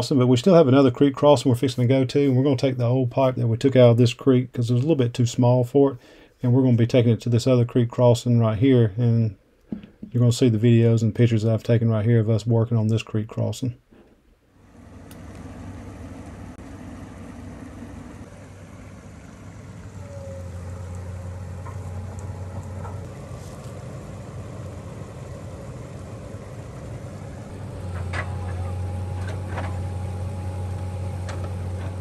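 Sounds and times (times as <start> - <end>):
excavator diesel engine running: 14.6 - 32.0.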